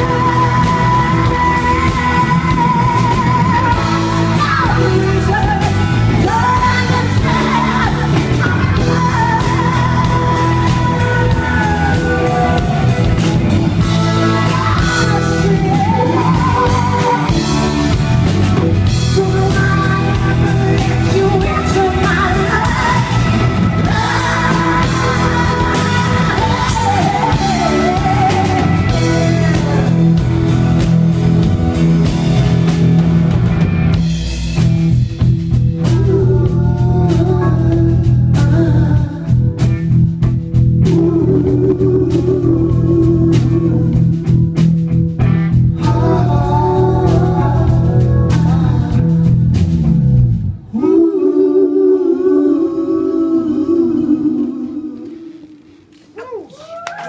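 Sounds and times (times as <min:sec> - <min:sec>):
woman singing: 0:00.0 - 0:18.0, 0:18.8 - 0:30.2, 0:35.8 - 0:39.7, 0:40.8 - 0:44.2, 0:45.8 - 0:49.3
electric guitar: 0:00.0 - 0:50.7
drums: 0:00.0 - 0:51.5.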